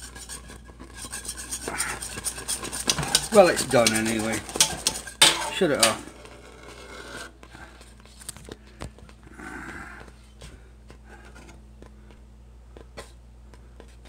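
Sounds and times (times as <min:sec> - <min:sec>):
whisk and pot clicking: 0:00.0 - 0:06.0
steady low hum: 0:00.0 - 0:14.0.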